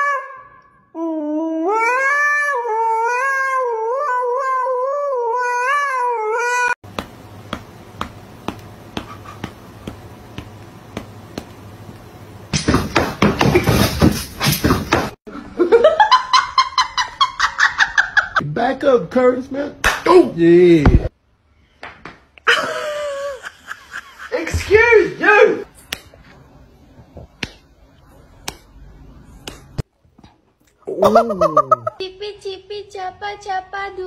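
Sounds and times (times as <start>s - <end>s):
dog howling into microphone: 0.0s - 6.8s
sharp taps: 6.9s - 12.0s.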